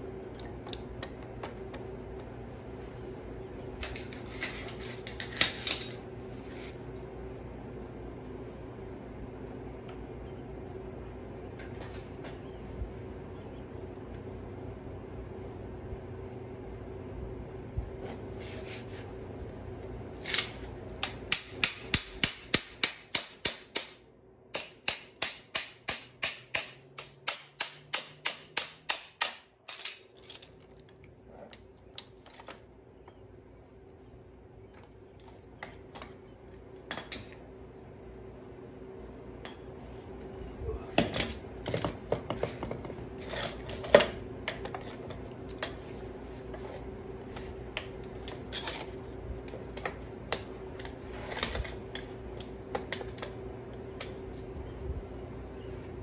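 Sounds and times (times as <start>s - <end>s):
metal tools clinking: 3.8s - 6.1s, 29.7s - 31.0s, 41.0s - 45.9s.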